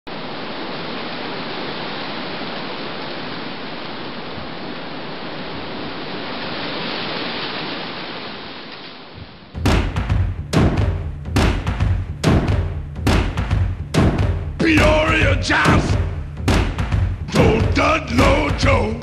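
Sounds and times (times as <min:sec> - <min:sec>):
steady rushing noise: 0:09.5 - 0:19.0.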